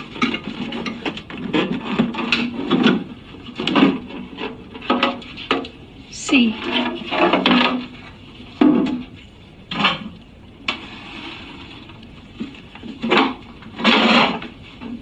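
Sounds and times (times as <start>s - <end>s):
plastic casing knocks and scrapes: 0.0s - 5.7s.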